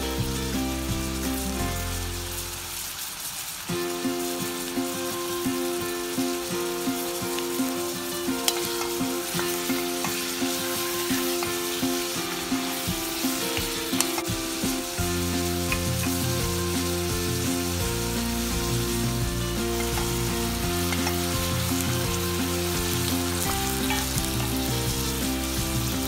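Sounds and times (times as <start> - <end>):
background music with beat: 0.0 - 2.6, 3.7 - 26.0
chicken and onion sizzling: 0.0 - 26.0.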